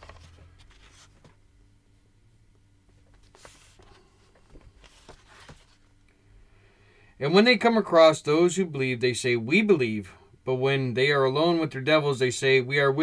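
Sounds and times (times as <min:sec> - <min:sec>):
soft rustle: 0:00.0 - 0:01.4, 0:02.9 - 0:05.9
faint steady hum: 0:00.0 - 0:13.0.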